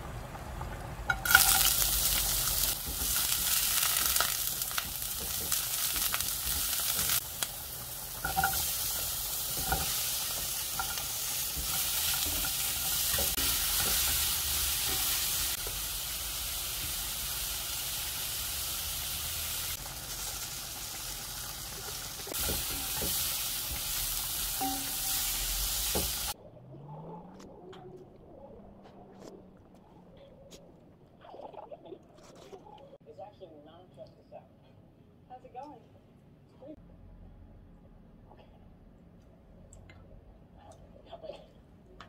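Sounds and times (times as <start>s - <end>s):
vegetables sizzling in hot oil: 0.0s - 26.4s.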